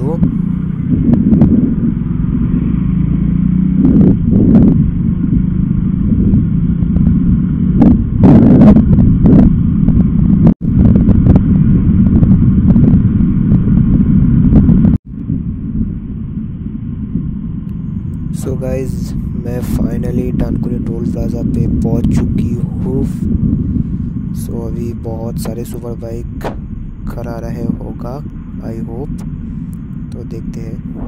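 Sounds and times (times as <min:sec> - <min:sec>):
motorcycle engine: 0:00.0 - 0:31.0
wind buffeting microphone: 0:00.0 - 0:31.0.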